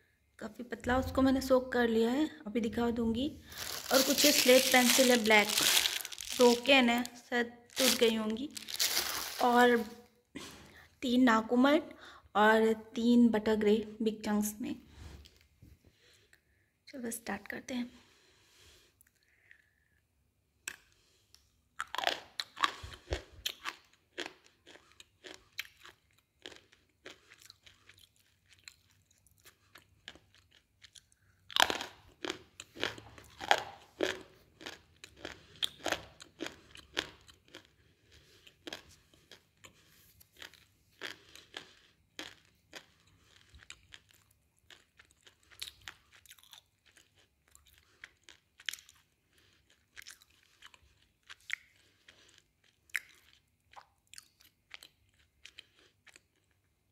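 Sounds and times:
crunching chews: 3.4s - 6.8s, 7.7s - 9.9s, 21.8s - 56.7s
crisp crunching bites: 3.4s - 9.9s, 31.5s - 37.7s.

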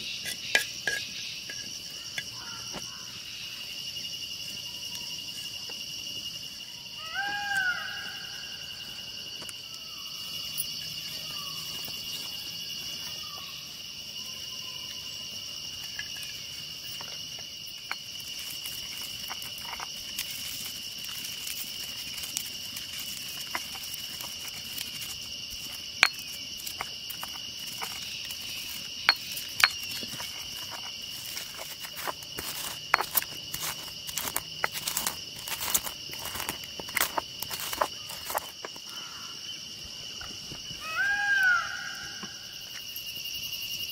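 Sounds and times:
insects chirring: 0.0s - 43.9s
pestle crushing spices in mortar: 23.4s - 38.8s.

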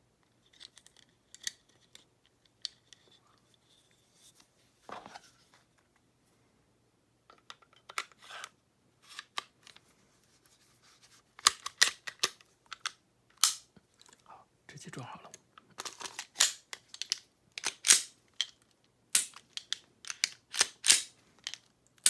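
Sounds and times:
pistol parts clicking: 0.5s - 2.9s, 11.4s - 13.7s, 15.8s - 22.0s.

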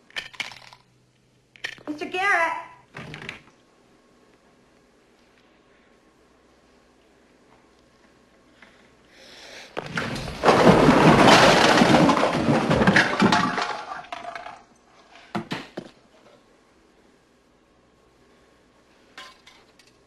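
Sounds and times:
crash of things breaking: 9.8s - 14.7s.

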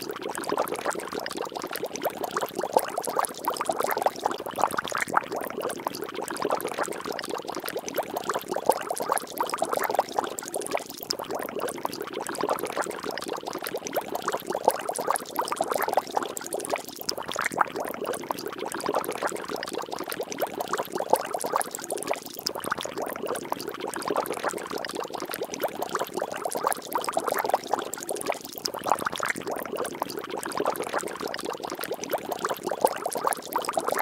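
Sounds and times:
water splashing and bubbling: 0.0s - 34.0s.

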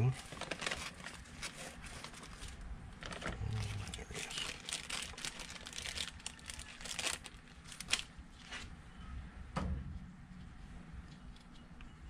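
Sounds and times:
plastic parts rustling and crinkling: 0.0s - 8.7s.

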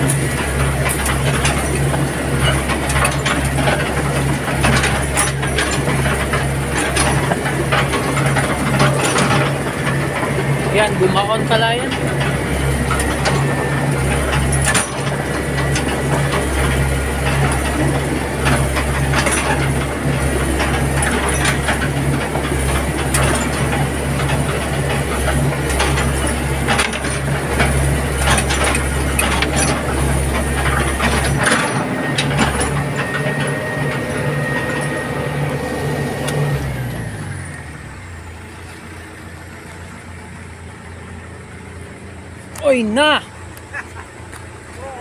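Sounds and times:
metallic clanks and knocks: 0.0s - 35.1s
diesel engine droning under load: 0.0s - 45.0s.

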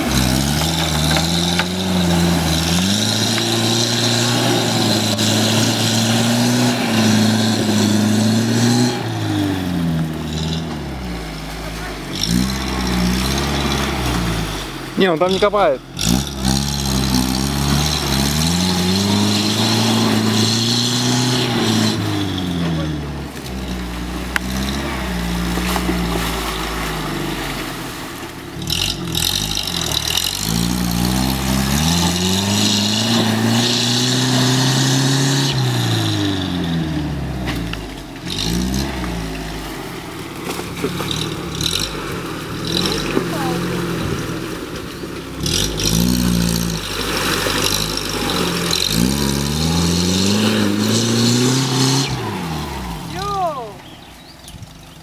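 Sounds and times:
off-road engine revving: 0.0s - 55.0s.

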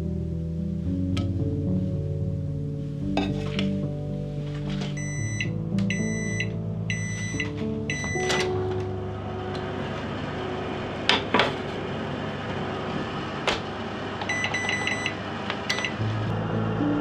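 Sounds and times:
steady low hum: 0.0s - 17.0s
oven beeps: 4.9s - 16.1s
short keypad beeps: 5.0s - 8.5s, 14.3s - 16.0s.

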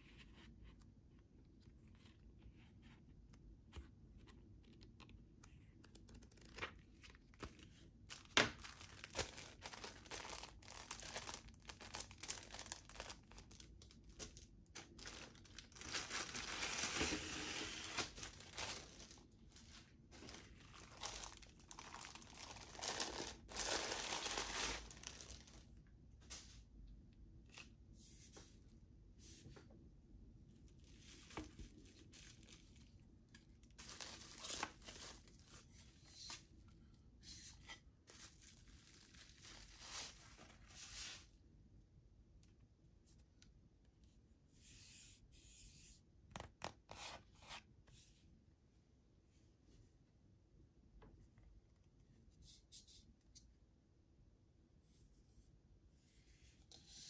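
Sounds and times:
paper pages flipping: 4.6s - 13.1s
plastic bag crinkling: 8.1s - 25.6s, 33.6s - 35.7s, 38.1s - 41.0s.

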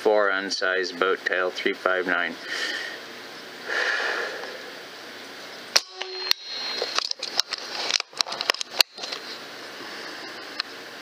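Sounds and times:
short ringing tone: 5.8s - 7.0s.

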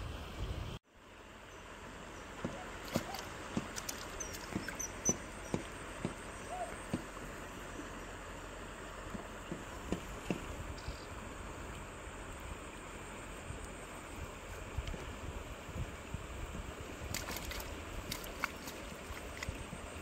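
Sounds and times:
faint high bird chirps: 4.1s - 5.7s, 6.3s - 6.8s
soft ticks and rustles: 17.1s - 19.7s.

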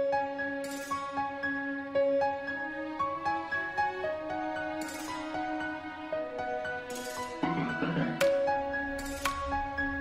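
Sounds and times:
soft instrumental music: 0.0s - 10.0s.

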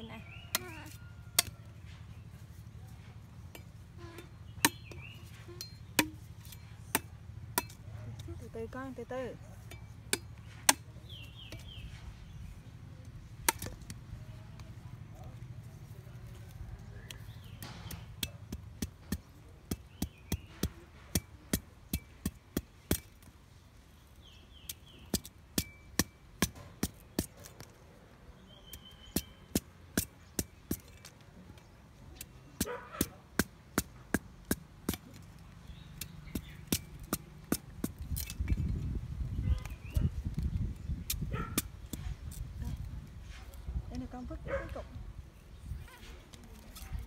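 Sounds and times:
cleaver knocking sugarcane: 4.2s - 7.8s, 13.4s - 14.0s.

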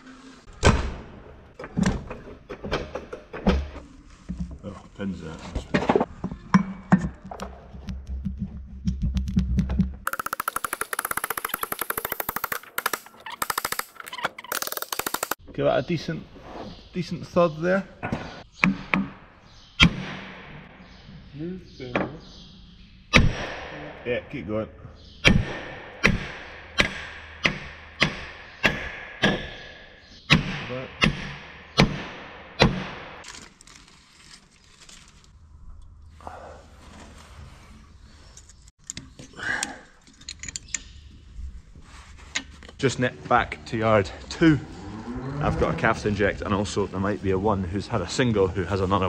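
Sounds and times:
hammer striking metal: 25.2s - 33.2s.

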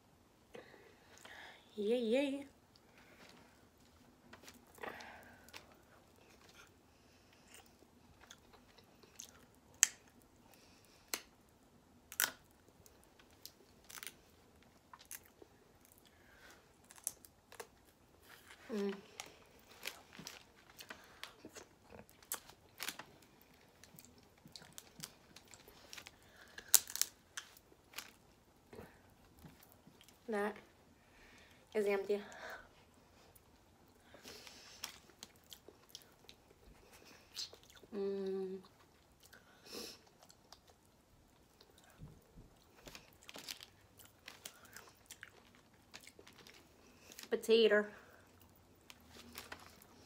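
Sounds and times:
crab shells cracking: 13.4s - 14.2s, 24.7s - 28.1s
small crunches and clicks: 16.8s - 28.2s, 42.6s - 47.3s
chewing: 34.8s - 37.9s, 38.6s - 47.3s.

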